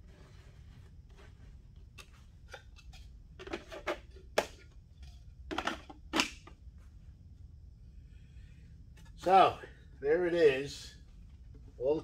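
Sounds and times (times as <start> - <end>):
low background rumble: 4.2 - 12.0.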